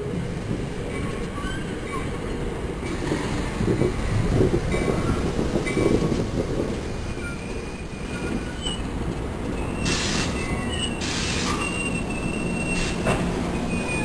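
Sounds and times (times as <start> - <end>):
train coaches rumbling and clattering: 0.0 - 14.0
wheels and brakes squealing: 0.9 - 2.2, 7.0 - 8.9, 9.5 - 14.0
bursts of hiss: 9.8 - 10.4, 11.0 - 11.6.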